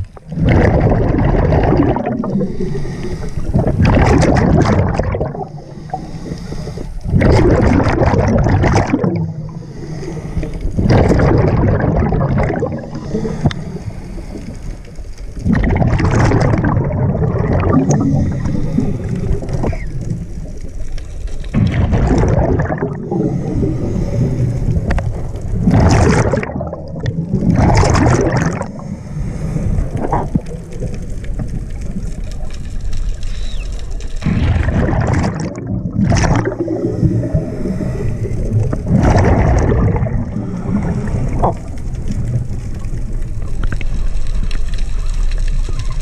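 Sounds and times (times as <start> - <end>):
diver's exhaled bubbles gurgling: 0.0 - 46.0.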